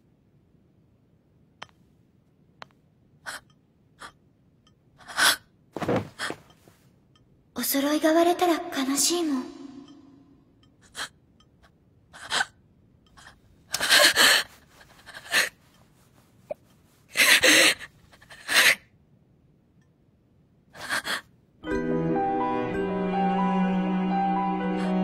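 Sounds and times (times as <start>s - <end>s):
music: 21.6s - 25.0s.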